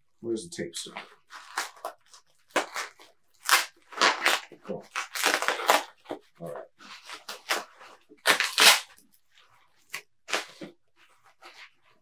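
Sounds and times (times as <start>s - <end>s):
packaging crinkling and tearing: 1.2s - 6.1s, 6.9s - 9.0s.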